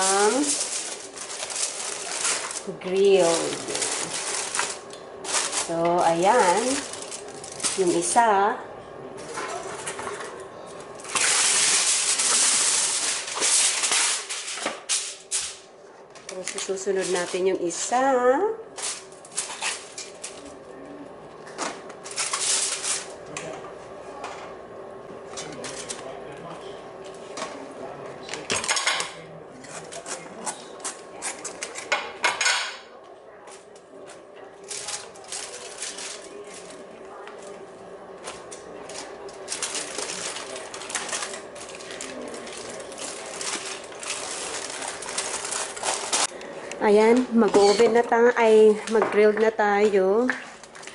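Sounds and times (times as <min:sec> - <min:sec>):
banana leaves rustling and crackling: 0:00.0 - 0:08.2, 0:10.8 - 0:15.6, 0:18.8 - 0:20.9, 0:22.0 - 0:23.2, 0:34.6 - 0:37.5, 0:38.3 - 0:46.3
aluminium foil crinkling: 0:00.0 - 0:08.4, 0:09.2 - 0:18.0, 0:18.8 - 0:20.9, 0:21.8 - 0:23.3, 0:25.4 - 0:26.1, 0:34.6 - 0:37.6, 0:38.2 - 0:49.0, 0:49.8 - 0:50.9.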